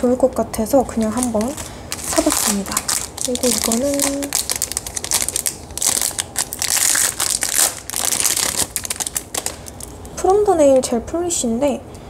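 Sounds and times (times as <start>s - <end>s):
plastic packaging crinkling: 0.9s - 10.2s.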